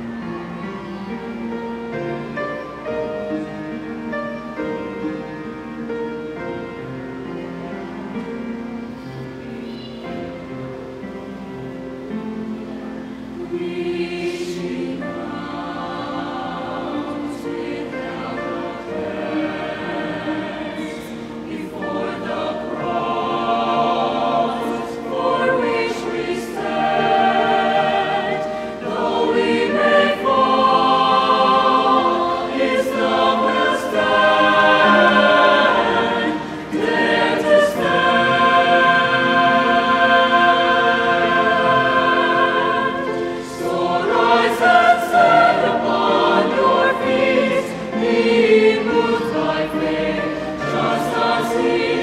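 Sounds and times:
mixed choir singing in parts: 12.0 - 52.0.

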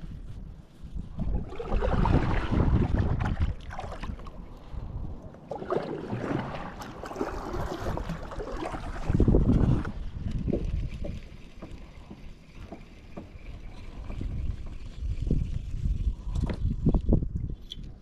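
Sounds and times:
wind on microphone: 0.0 - 12.2, 13.1 - 18.0
paddle splashing in water: 1.2 - 4.4, 5.4 - 14.4.

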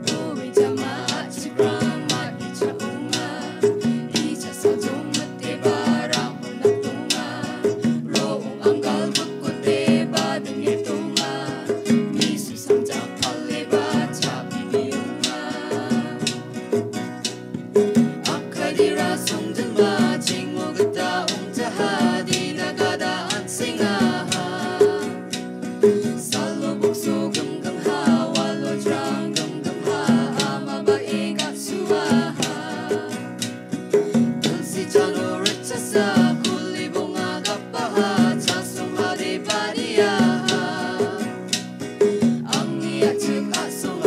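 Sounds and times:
man and woman singing: 0.0 - 16.9, 18.1 - 44.0
long drum: 0.0 - 44.0
strummed acoustic guitar: 0.0 - 44.0.

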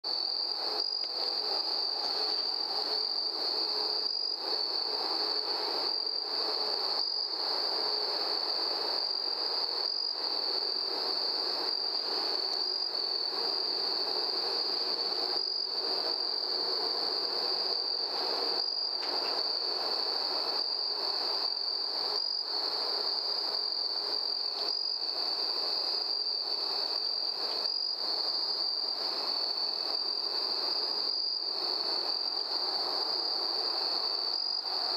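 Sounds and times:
crickets chirping: 0.0 - 34.9.

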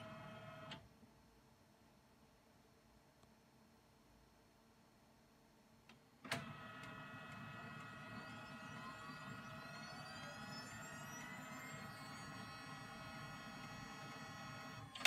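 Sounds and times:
printer motors and fans whining: 0.0 - 0.8, 6.2 - 15.0
printer click: 6.2 - 7.5.

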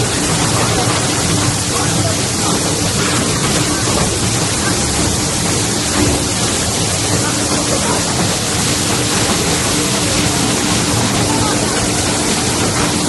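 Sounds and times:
shredding machinery noise: 0.0 - 13.0.

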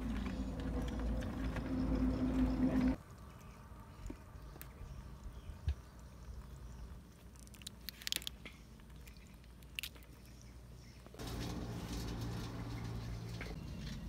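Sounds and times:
crab shell cracking: 7.2 - 10.3.

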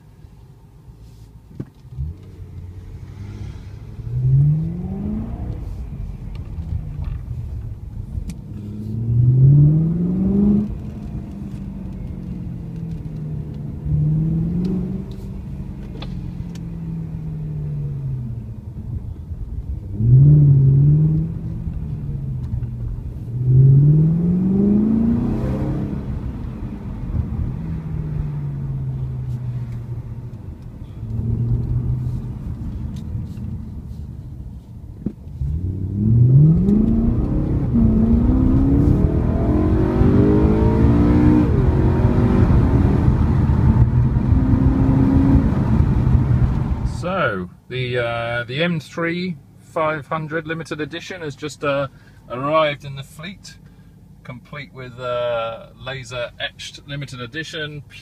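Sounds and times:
car engine accelerating: 1.7 - 34.6, 35.2 - 47.1.

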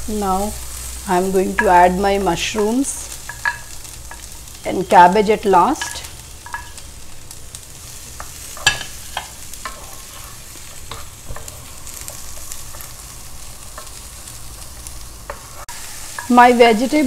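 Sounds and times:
vegetables sizzling in a pan: 0.0 - 17.0
spatula scraping and knocking pan: 2.5 - 4.3, 5.8 - 6.8, 8.1 - 13.0.

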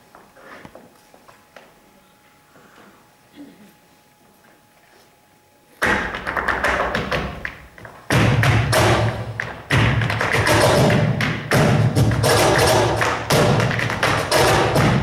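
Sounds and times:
cajon drumming: 5.8 - 15.0
stamping footwork on stage floor: 5.8 - 15.0.

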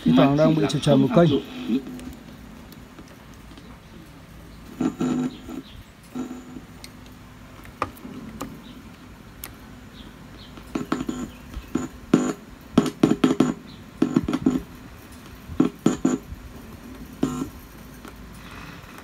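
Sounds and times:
sharp clicks: 4.6 - 16.2
boombox audio cutting in and out: 4.7 - 6.8, 7.7 - 14.8, 15.5 - 16.5, 17.1 - 17.6.

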